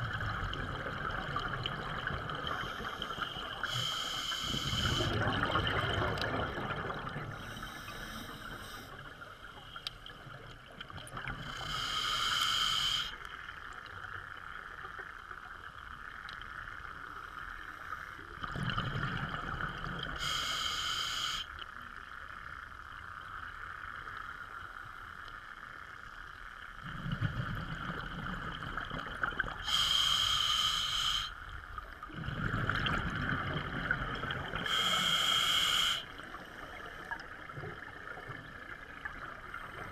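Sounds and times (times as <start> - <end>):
steady hiss: 2.4 - 5.3, 7.3 - 10.0, 11.4 - 13.4, 20.0 - 26.6, 29.5 - 32.0, 34.6 - 37.5
diver breathing through regulator: 2.5 - 5.2, 7.4 - 9.0, 11.4 - 13.2, 20.2 - 21.5, 29.6 - 31.4, 34.6 - 36.7.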